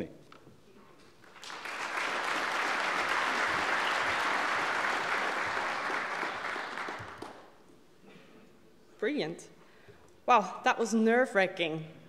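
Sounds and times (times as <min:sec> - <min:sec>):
large audience applauding: 0:01.2 - 0:07.6.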